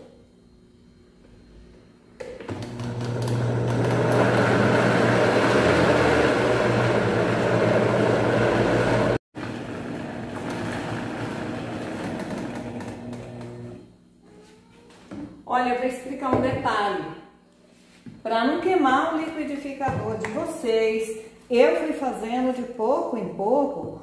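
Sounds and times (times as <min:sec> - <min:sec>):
blender motor grinding: 0:02.4 - 0:13.9.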